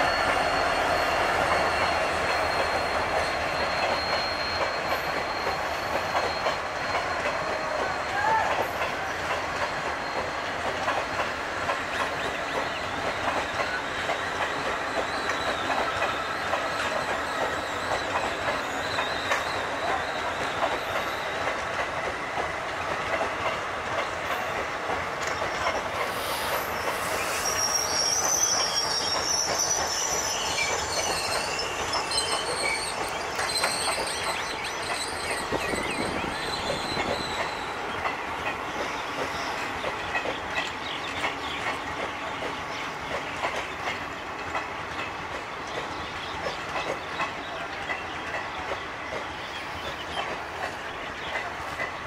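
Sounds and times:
high-pitched wheel squeals: 0.0 - 10.6, 12.0 - 21.4, 26.0 - 37.8
high whine of wheel on rail: 0.0 - 41.3
train wheels rumbling and clattering: 0.0 - 52.0.

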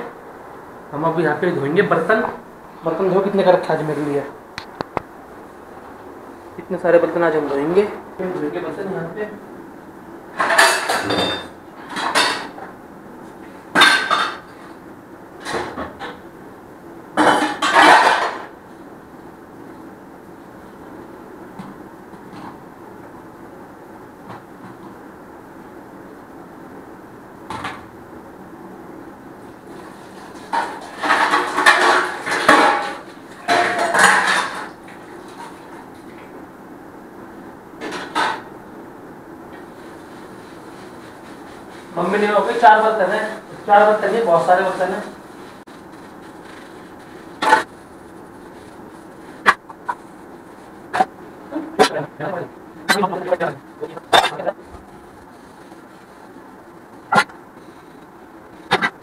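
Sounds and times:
utensils clattering in a sink: 10.4 - 12.6, 17.2 - 18.5, 30.3 - 35.7
metal utensils clattering: 30.5 - 34.7.

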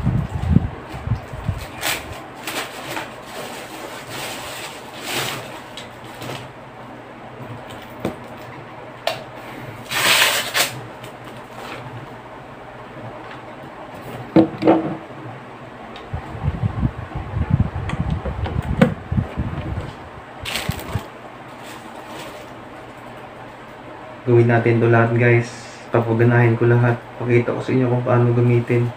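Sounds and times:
plastic packaging crinkling: 1.6 - 6.5, 9.8 - 11.7, 20.4 - 22.8.

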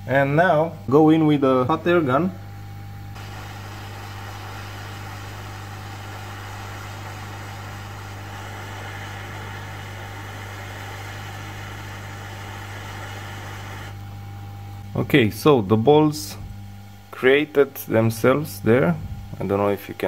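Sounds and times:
low hum: 2.5 - 14.9
hot air blowing: 3.1 - 14.4.

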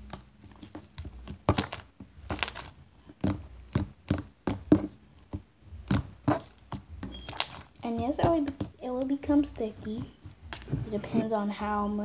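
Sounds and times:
slime squelching and popping: 0.0 - 10.8.

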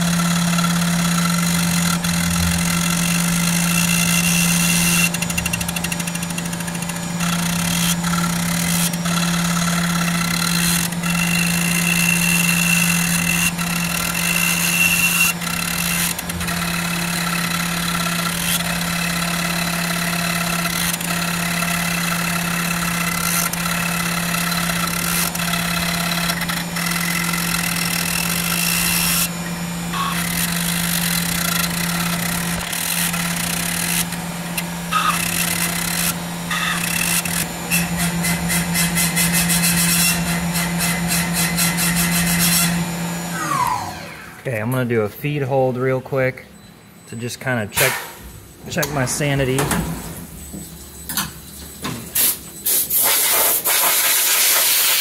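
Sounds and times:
end mill cutting: 0.0 - 44.8
mill spindle hum and whine: 0.0 - 53.3
coolant spraying: 52.2 - 55.0.

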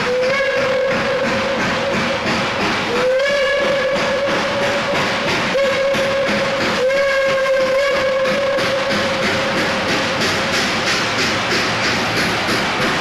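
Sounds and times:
steam locomotive chime whistle: 0.0 - 2.2, 2.9 - 9.5
moving train noise: 0.0 - 13.0.

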